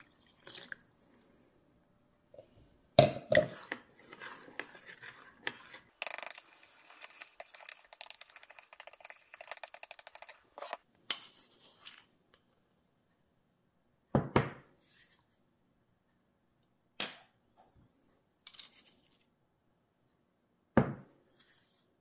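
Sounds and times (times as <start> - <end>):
metal spoon stirring in bowl: 3.3 - 10.8.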